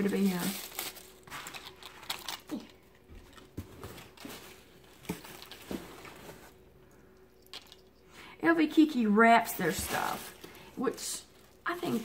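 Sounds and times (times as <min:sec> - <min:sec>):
paper packaging rustling: 0:00.0 - 0:06.6, 0:09.6 - 0:12.0.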